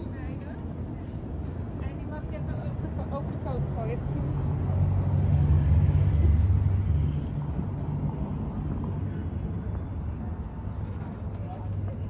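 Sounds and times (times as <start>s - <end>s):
street noise: 0.0s - 12.0s
vehicle passing by: 3.5s - 9.0s
faint voices: 8.7s - 12.0s.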